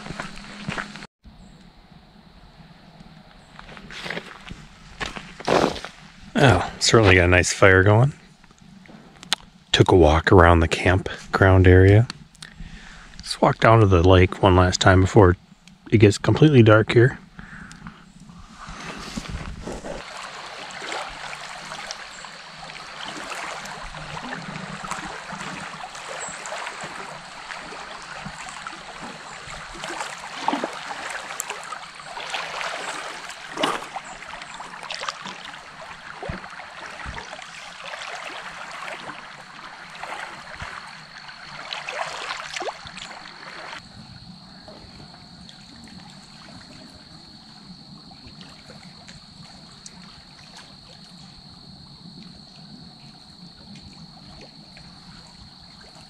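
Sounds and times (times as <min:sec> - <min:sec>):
waves lapping on rocky shore: 0:17.2 - 0:51.8.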